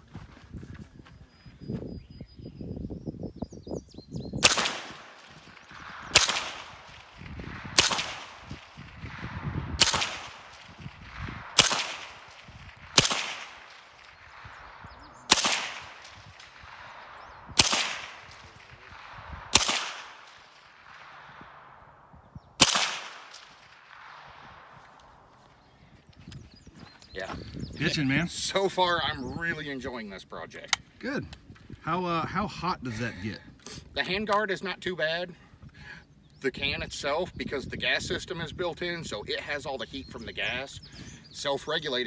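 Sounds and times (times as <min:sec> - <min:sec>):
suppressed rifle shots: 0:04.4 - 0:21.7, 0:22.6 - 0:25.1.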